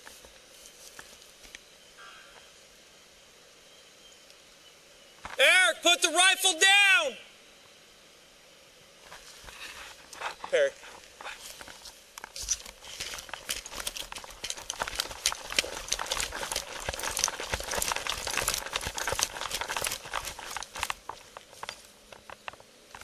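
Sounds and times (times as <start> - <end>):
footsteps running on grass and pavement: 9.4 - 23.0
gear knocking against camera: 12.2 - 23.0.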